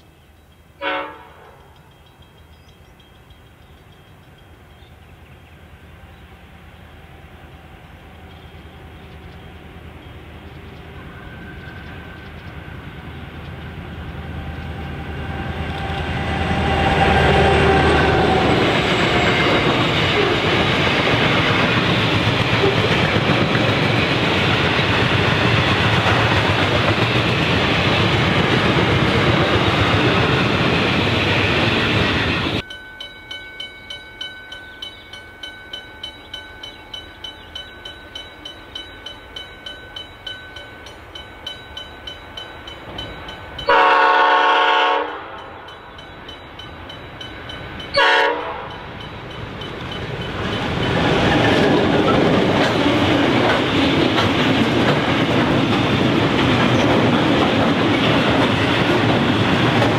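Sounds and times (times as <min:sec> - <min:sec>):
diesel locomotive passing: 0:00.8 - 0:59.9
wagons wheel-on-rail noise: 0:06.1 - 0:44.1, 0:45.1 - 0:59.9
pulsing ringing: 0:32.1 - 0:44.0.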